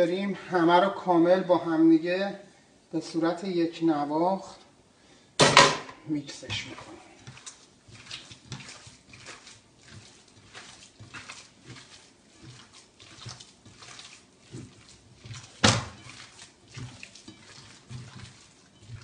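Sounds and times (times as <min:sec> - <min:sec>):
hands squishing minced meat: 0:06.2 - 0:19.0.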